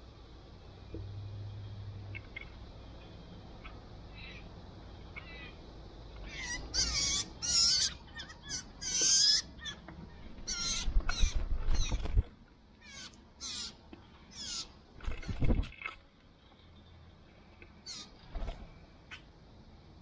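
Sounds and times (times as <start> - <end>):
blue jay harsh calls: 4.1 - 4.5, 5.2 - 5.6, 6.2 - 9.8, 10.4 - 12.0, 12.8 - 14.7, 17.8 - 18.2.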